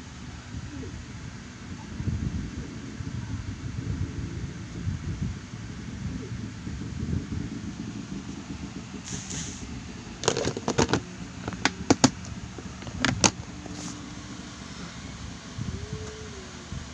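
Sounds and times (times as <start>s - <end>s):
steady low rumble: 0.0s - 16.9s
plastic enclosure clicks and knocks: 10.2s - 13.5s.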